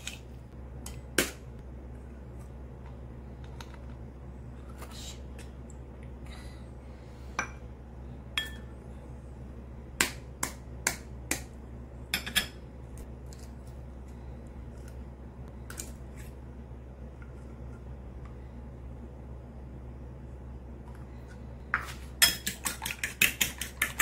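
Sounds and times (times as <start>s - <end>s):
steady low hum: 0.0s - 24.0s
eggshell and fork tapping bowl: 22.2s - 24.0s.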